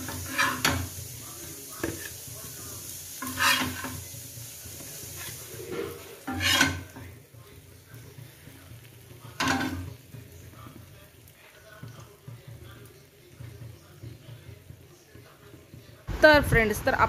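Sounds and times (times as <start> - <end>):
metal spatula scraping and clattering: 0.0 - 1.0, 3.2 - 4.1, 4.8 - 7.2, 8.9 - 10.1
frying oil sizzling: 0.0 - 17.0.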